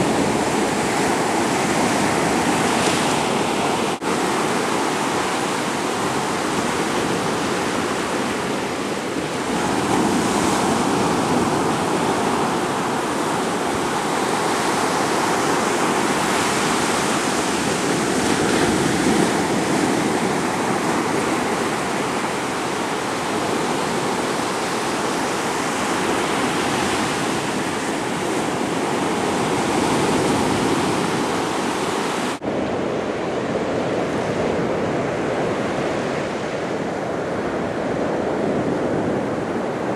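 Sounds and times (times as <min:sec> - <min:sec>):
waves washing on sandy beach: 0:00.0 - 0:39.9.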